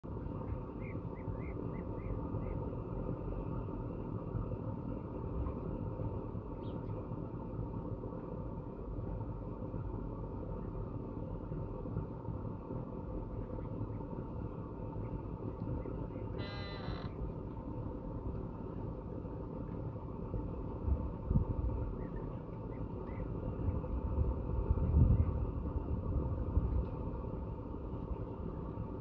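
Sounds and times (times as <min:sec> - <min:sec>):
low outdoor rumble: 0:00.0 - 0:29.0
faint high chirps: 0:16.3 - 0:17.2.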